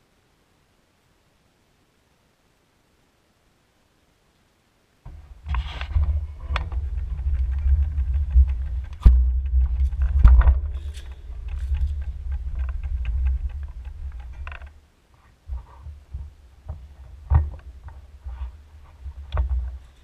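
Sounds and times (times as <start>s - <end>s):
sharp knocks: 5.1s - 14.7s
bicycle rolling rumble and rattle: 5.1s - 20.0s.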